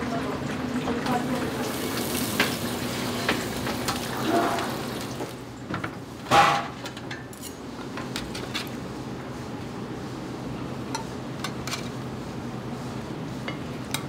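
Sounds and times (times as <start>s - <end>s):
utensils and dishes clinking: 6.3s - 8.7s.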